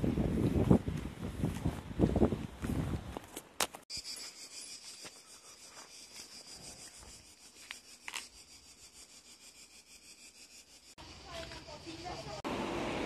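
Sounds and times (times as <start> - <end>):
cicadas buzzing: 3.9 - 13.0.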